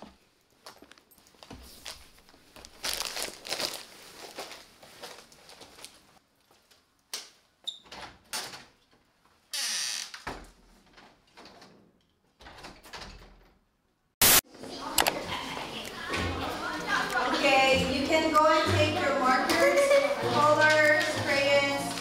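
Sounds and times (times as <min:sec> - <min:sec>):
paper rustling: 0:01.3 - 0:06.2
door opening and closing: 0:07.7 - 0:08.8, 0:09.6 - 0:13.6.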